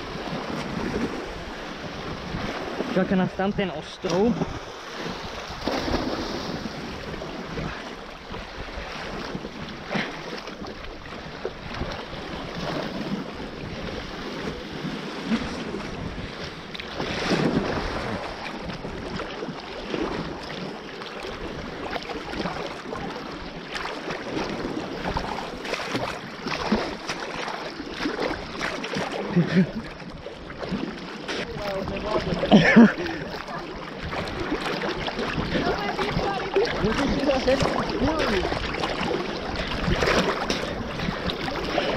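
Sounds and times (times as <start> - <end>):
sea water sloshing and splashing: 0.0 - 41.9
wind buffeting microphone: 11.0 - 20.4, 31.4 - 41.9.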